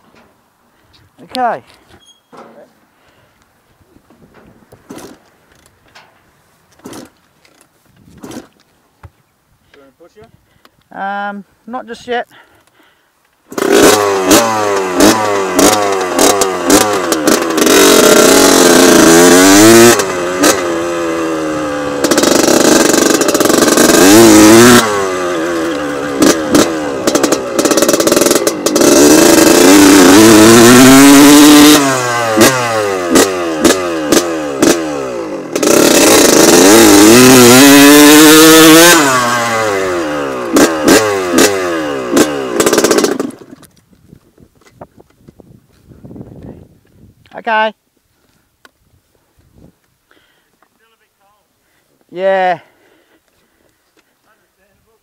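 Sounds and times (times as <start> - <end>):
motocross engine revving: 4.9 - 5.2, 6.8 - 7.2, 13.5 - 43.7
engine crackling and popping: 21.9 - 30.3, 40.3 - 45.4.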